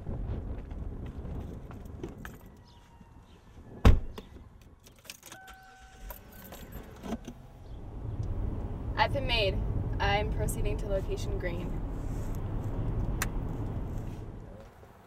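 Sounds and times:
keys jingling: 4.8 - 7.2.

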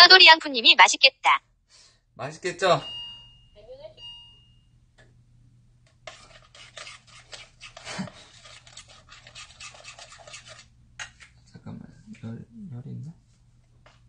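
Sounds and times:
spoon scraping batter in bowl: 6.0 - 11.4.

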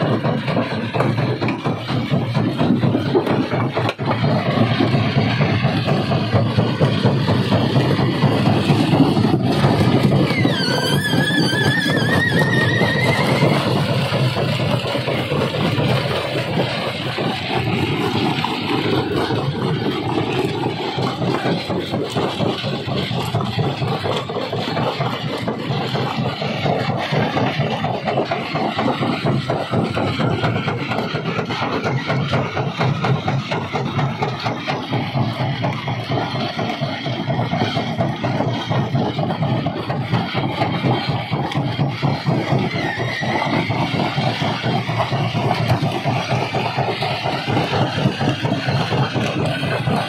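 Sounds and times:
rock crusher grinding and rattling: 0.0 - 50.0
high wavering squeal: 9.6 - 14.1.

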